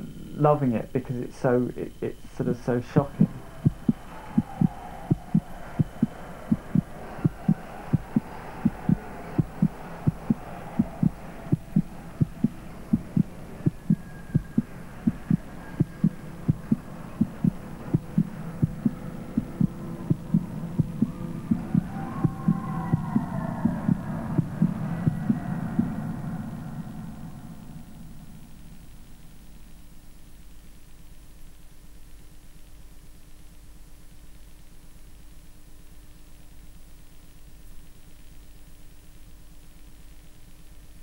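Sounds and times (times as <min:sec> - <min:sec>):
low thumping beat: 0:03.2 - 0:26.0.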